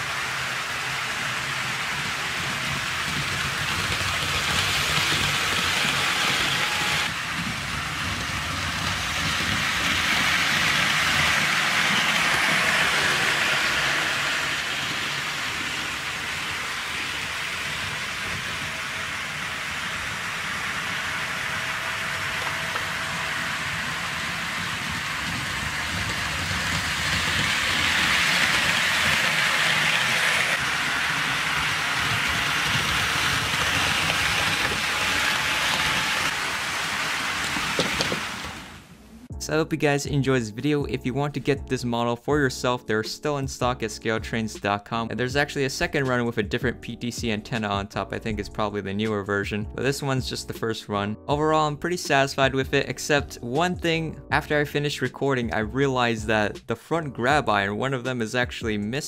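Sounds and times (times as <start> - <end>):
model train wheels rolling on rails: 0.0 - 38.9.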